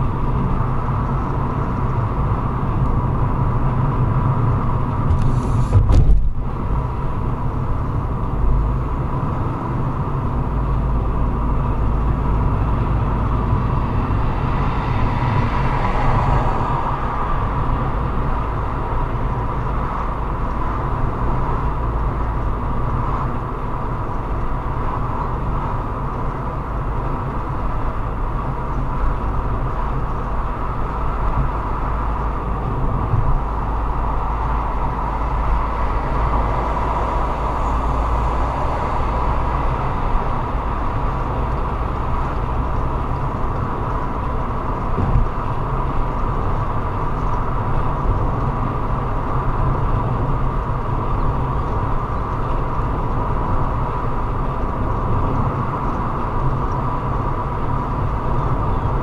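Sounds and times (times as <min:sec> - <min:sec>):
car road and engine noise: 0:00.0 - 0:59.0
brief thump: 0:05.1 - 0:06.4.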